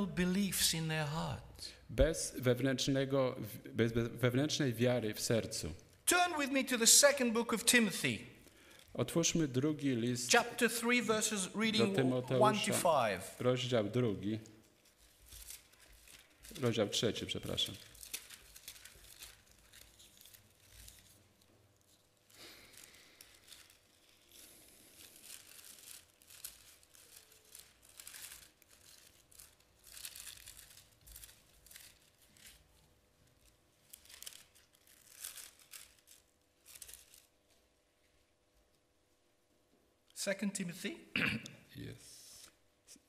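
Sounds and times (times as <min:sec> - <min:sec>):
thin pages rustling: 0:14.6 - 0:37.7.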